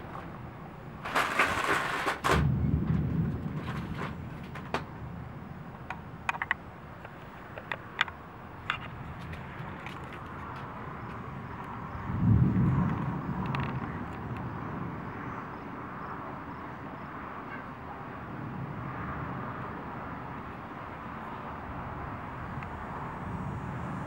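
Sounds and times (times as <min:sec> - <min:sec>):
low thunder rumble: 0:01.2 - 0:07.0, 0:08.9 - 0:20.6.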